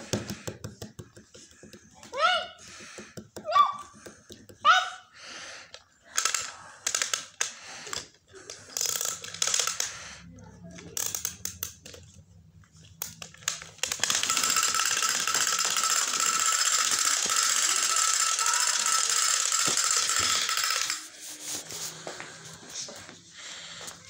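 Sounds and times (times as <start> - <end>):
scattered clicks: 5.7 - 10.0, 13.0 - 21.0
toy rattling: 5.7 - 12.2, 12.8 - 21.6.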